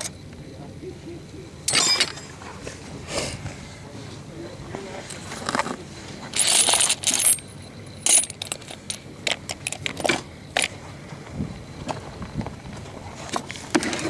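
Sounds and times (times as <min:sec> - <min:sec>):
small steel tools clinking: 0:01.7 - 0:02.4, 0:06.3 - 0:10.7.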